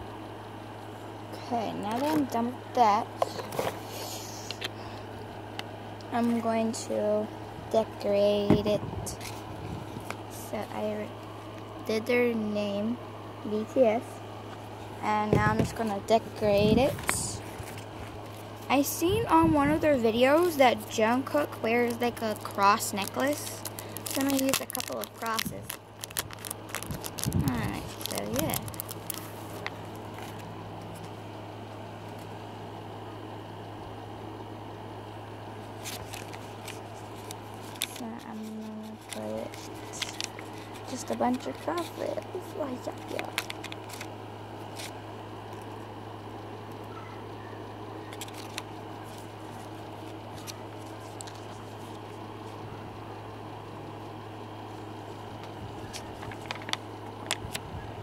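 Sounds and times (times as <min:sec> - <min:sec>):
low machine hum: 0:00.0 - 0:58.0
plastic sheet crinkling: 0:21.2 - 0:31.1, 0:35.8 - 0:44.1, 0:48.1 - 0:52.6, 0:55.4 - 0:57.6.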